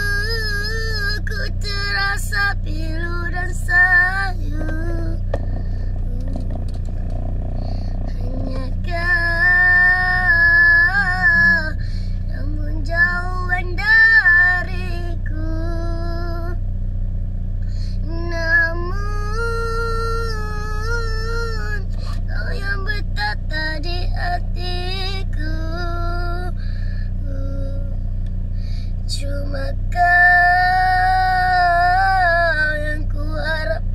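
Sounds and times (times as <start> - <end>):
boy singing: 0.0 - 5.2, 8.2 - 16.6
steady low hum: 0.0 - 33.9.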